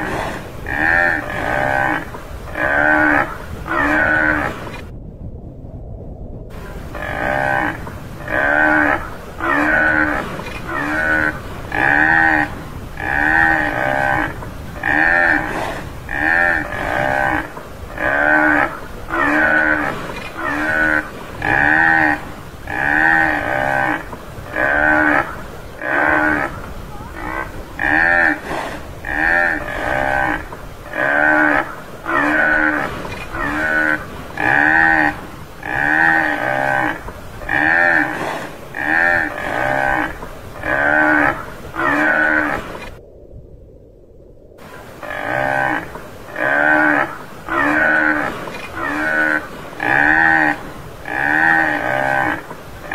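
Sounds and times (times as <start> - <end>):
buffalo calling: 0.0 - 4.8, 6.6 - 42.9, 44.8 - 52.9.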